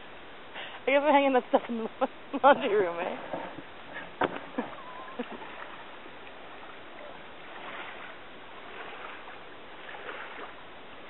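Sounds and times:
water sloshing around wading legs: 0:02.4 - 0:10.8.

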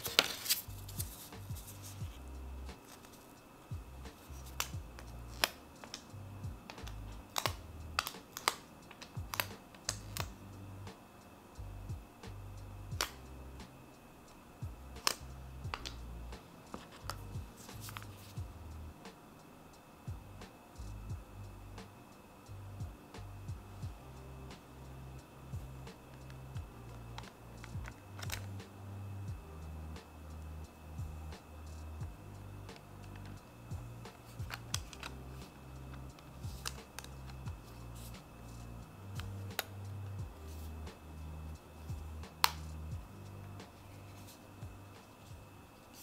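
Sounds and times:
soft background music: 0:00.0 - 0:46.0
sustained bass notes: 0:00.6 - 0:02.8, 0:03.7 - 0:05.4, 0:06.1 - 0:08.0, 0:11.6 - 0:13.7, 0:14.6 - 0:16.4, 0:17.0 - 0:19.0, 0:20.1 - 0:21.8, 0:22.5 - 0:44.9
deep kick drums: 0:01.0 - 0:02.2, 0:03.7 - 0:04.1, 0:04.7 - 0:05.0, 0:06.4 - 0:07.6, 0:11.8 - 0:12.1, 0:14.6 - 0:15.0, 0:17.2 - 0:17.6, 0:18.4 - 0:18.7, 0:20.1 - 0:21.4, 0:22.8 - 0:24.1, 0:25.5 - 0:26.0, 0:26.6 - 0:26.8, 0:29.3 - 0:29.5, 0:31.0 - 0:31.3, 0:32.0 - 0:32.2, 0:33.7 - 0:34.9, 0:37.4 - 0:37.6, 0:40.2 - 0:40.4, 0:41.9 - 0:42.3, 0:42.9 - 0:43.2, 0:44.6 - 0:45.4.

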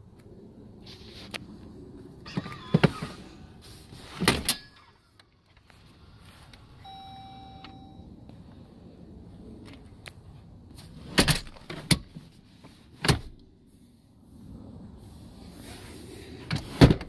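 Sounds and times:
electronic chime tone: 0:06.8 - 0:08.1
car seat mechanism clicks and clunks: 0:11.1 - 0:12.2, 0:13.0 - 0:13.4.

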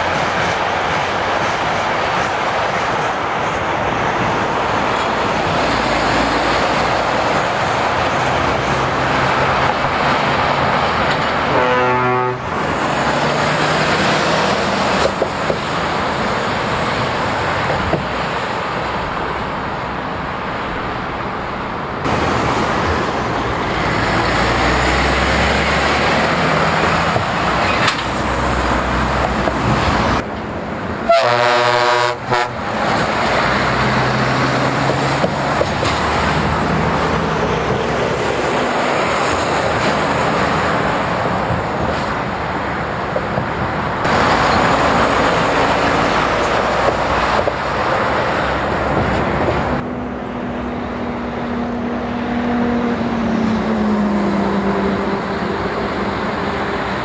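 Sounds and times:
heavy trucks passing: 0:00.0 - 0:57.0
truck horn: 0:11.4 - 0:12.6, 0:31.0 - 0:32.6.

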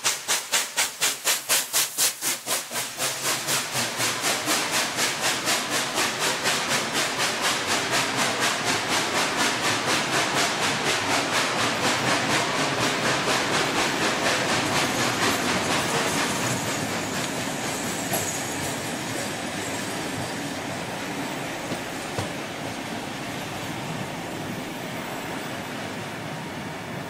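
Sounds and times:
steam locomotive exhaust beats: 0:00.0 - 0:27.0
train carriages rolling and clattering: 0:00.0 - 0:27.0.

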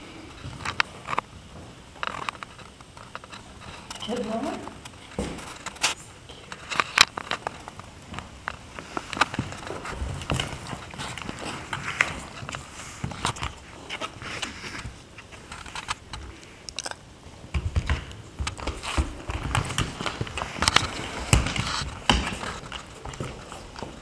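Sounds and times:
cat and dog moving on a mat: 0:07.2 - 0:16.6, 0:17.5 - 0:24.0.

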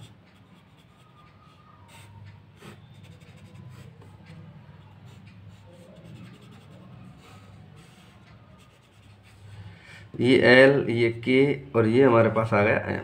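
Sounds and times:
pen scratching on paper: 0:00.0 - 0:01.1, 0:01.9 - 0:04.1, 0:04.8 - 0:09.4.

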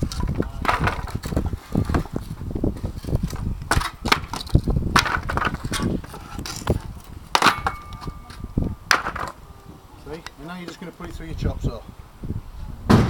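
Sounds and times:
wooden boards cracking and clattering: 0:00.0 - 0:02.4, 0:03.0 - 0:06.7.

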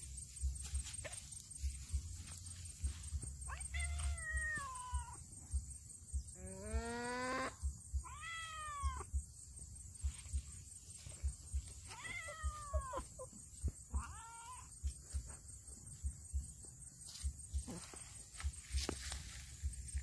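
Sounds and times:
cat meowing: 0:03.5 - 0:05.2, 0:08.0 - 0:09.1, 0:11.9 - 0:13.1, 0:13.9 - 0:14.7.

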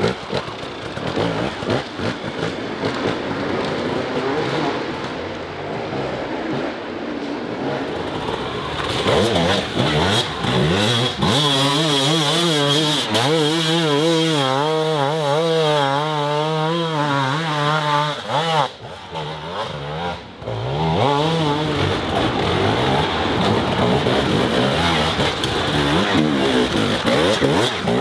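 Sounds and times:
dirt bike engine revving: 0:00.0 - 0:05.0, 0:07.7 - 0:28.0.

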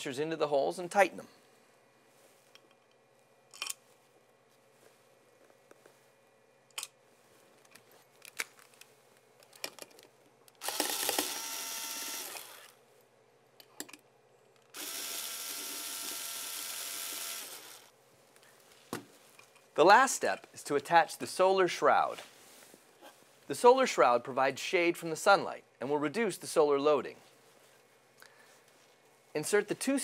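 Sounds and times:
electric screwdriver motor: 0:10.6 - 0:12.8, 0:14.7 - 0:17.9.

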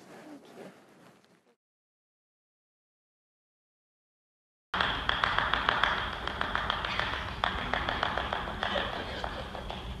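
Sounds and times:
person clapping in empty auditorium: 0:04.8 - 0:10.0.

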